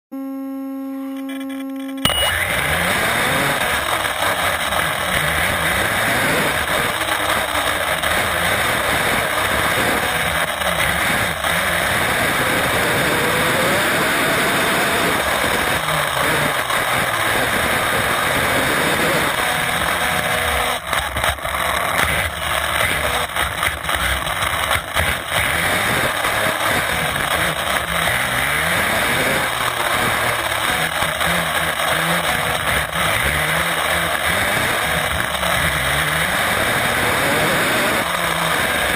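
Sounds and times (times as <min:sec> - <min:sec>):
steady tone: 0:00.1 - 0:03.7
faint electric motor whine: 0:00.1 - 0:21.4
wind and tyre noise: 0:02.0 - 0:38.9.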